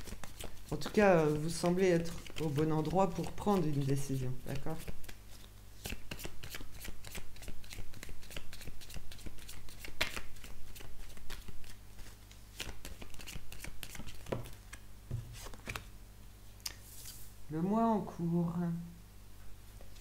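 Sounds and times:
cards being shuffled: 0.0 - 15.9.

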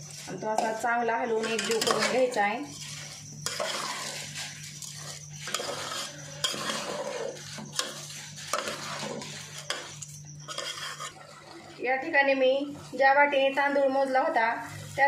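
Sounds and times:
spatula scraping rice in pot: 0.0 - 11.8.

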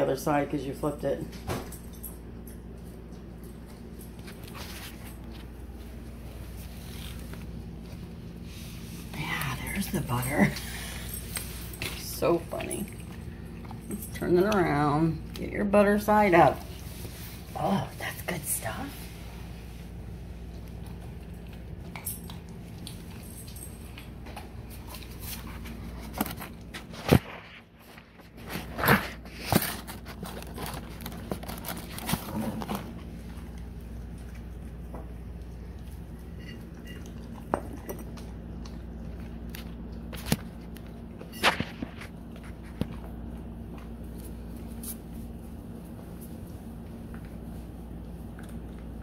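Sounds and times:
dog eating off tile floor: 0.0 - 49.0
steady low hum: 0.0 - 49.0
dog chewing and licking: 20.2 - 27.0, 27.8 - 41.0, 47.0 - 49.0.

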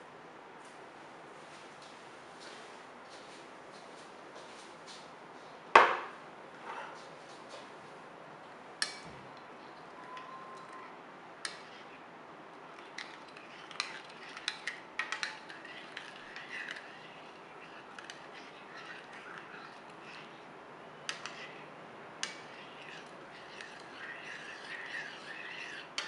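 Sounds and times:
spoon stirring liquid in bowl: 8.8 - 26.0.

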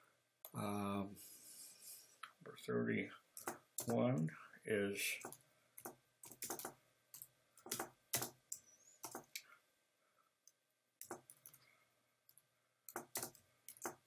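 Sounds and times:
computer keyboard typing: 5.2 - 9.4, 11.0 - 11.6, 12.9 - 14.0.

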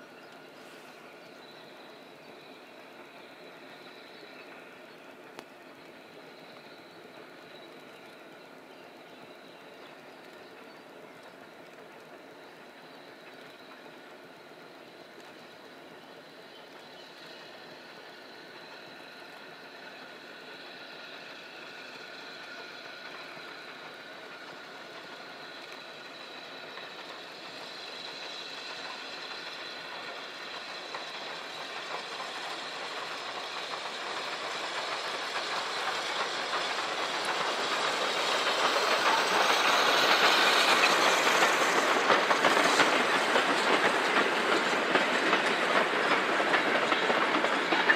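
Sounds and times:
steam locomotive passing: 0.0 - 47.9
wheels clattering over rail joints: 30.8 - 47.9.

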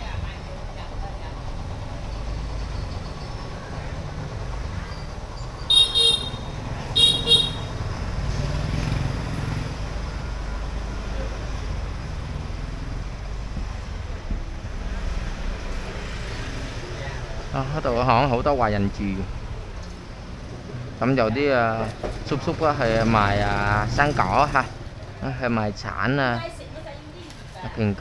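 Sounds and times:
street traffic rumble: 0.0 - 28.0
motorbike horn beeps: 5.7 - 7.8.

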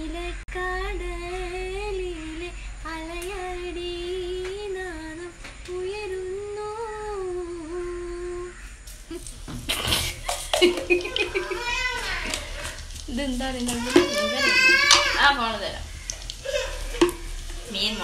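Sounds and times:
woman humming: 6.7 - 9.2, 10.7 - 15.1.

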